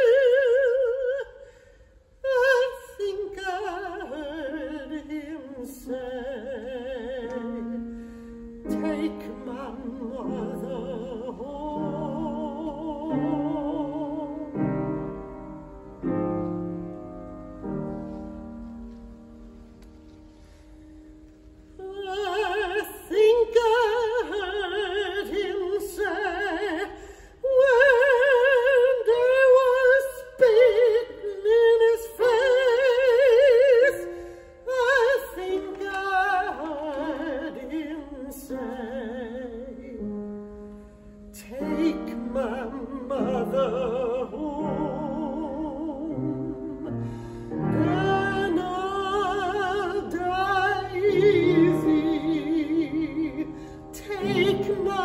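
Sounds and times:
person singing operatically: 47.7 - 55.0.

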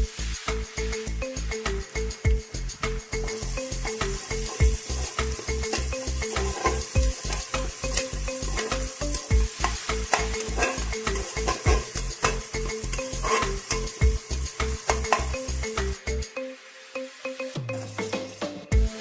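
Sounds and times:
background music with steady beat: 0.0 - 19.0
onions sizzling in oil: 0.0 - 19.0
spoon scraping a pot: 3.2 - 16.0.

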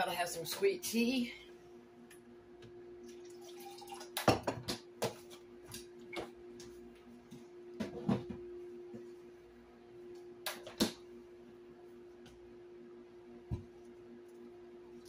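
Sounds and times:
tea pouring into glass: 3.1 - 4.2.

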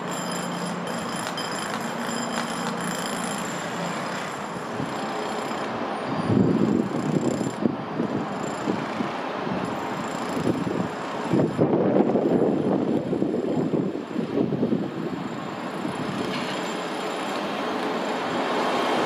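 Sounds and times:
diesel train running into platform: 10.9 - 19.0.

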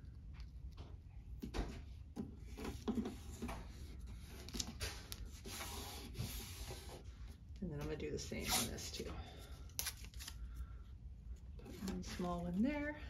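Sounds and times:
hand rubbing tape: 2.5 - 7.0, 8.4 - 8.9.

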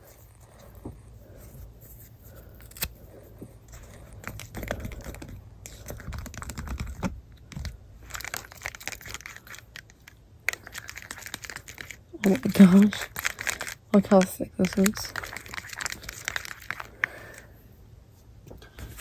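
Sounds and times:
plastic stick scraping plastic cup: 3.7 - 17.5.

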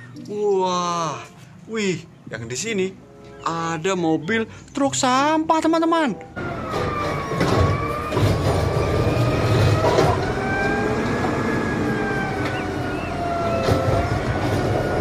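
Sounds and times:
garbage truck diesel engine: 6.4 - 15.0
hydraulic whine: 6.4 - 15.0.

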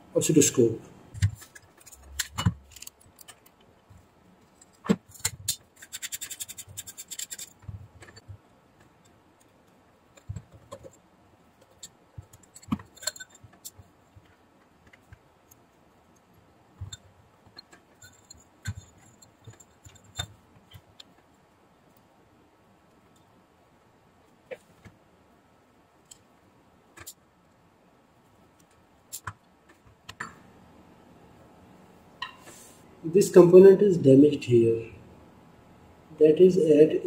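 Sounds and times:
clicks and scrapes of camera parts: 1.2 - 3.6, 4.5 - 8.3.

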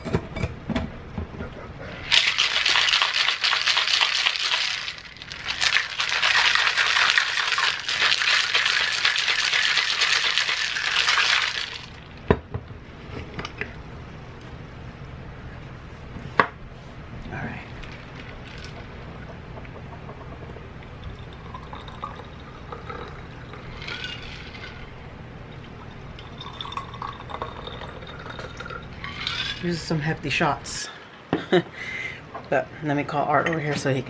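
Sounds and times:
cocktail shaker rattling: 2.1 - 12.1, 17.8 - 19.0, 22.9 - 24.9, 28.6 - 29.8.

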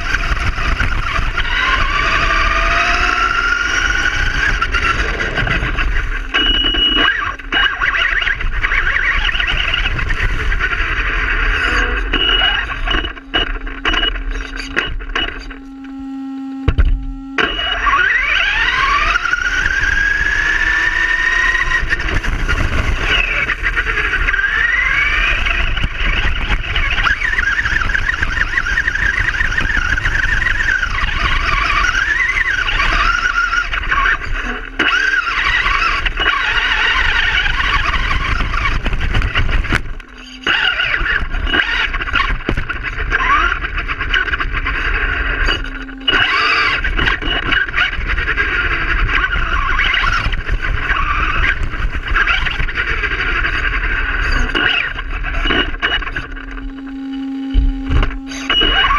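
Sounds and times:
tyres rumbling on pavement: 0.0 - 11.4
rc truck motor whining: 0.0 - 58.9.

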